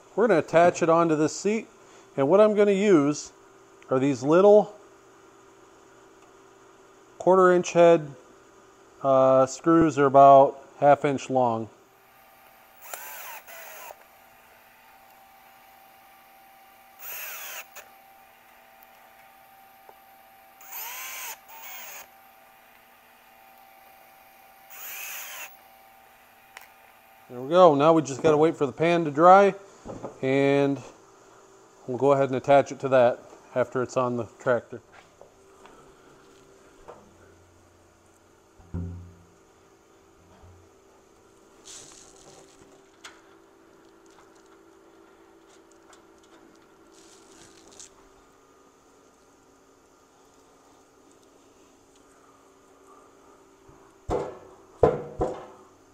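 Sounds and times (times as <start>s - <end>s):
cordless drill whining: 12.5s - 14.1s, 16.9s - 17.9s, 20.6s - 22.2s, 24.7s - 25.7s
rustle: 41.5s - 49.3s.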